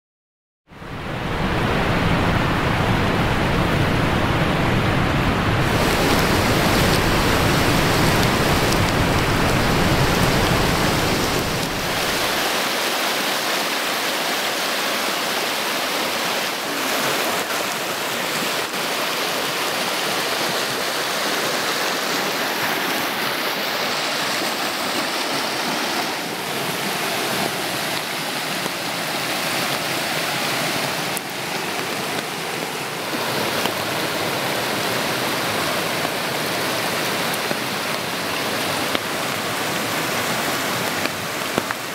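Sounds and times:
floodwater rushing: 0.7s - 41.9s
deep rumble: 1.0s - 12.4s.

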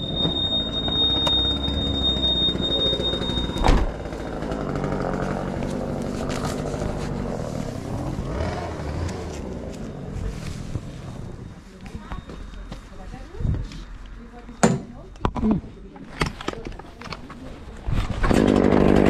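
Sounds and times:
engine running: 0.0s - 11.6s, 18.2s - 19.0s.

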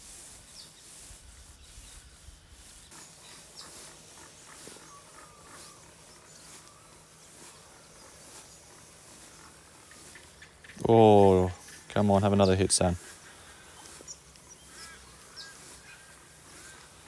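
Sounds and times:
high bird chirps: 2.8s - 10.9s, 13.6s - 17.0s.

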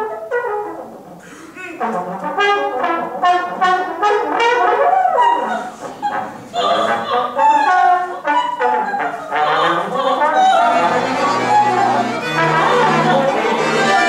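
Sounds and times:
trombone: 0.0s - 1.2s, 1.8s - 14.0s
viola: 3.2s - 14.0s
person singing: 5.3s - 14.0s.

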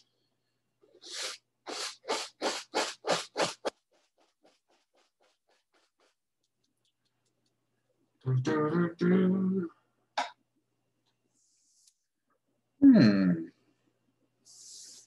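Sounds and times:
paintbrush scratching on canvas: 1.1s - 6.3s.

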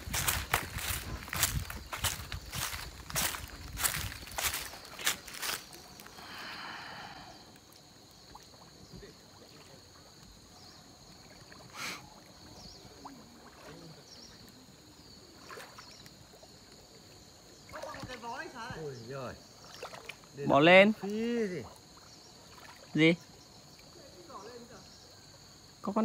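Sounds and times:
pond water sloshing: 0.0s - 25.2s
water splash: 11.2s - 14.1s, 15.3s - 16.0s, 19.6s - 20.3s, 22.4s - 23.1s.

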